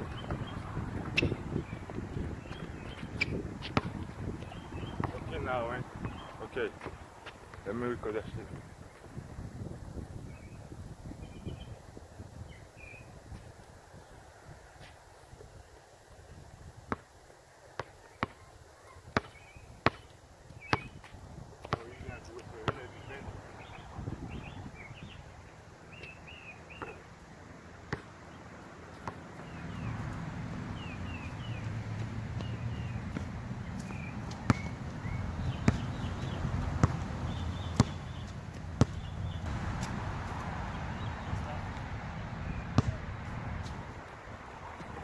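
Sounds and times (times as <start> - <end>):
basketball bouncing on hard court: 0.1 - 5.4, 19.2 - 20.1, 22.6 - 22.8, 32.0 - 34.8, 35.4 - 39.9.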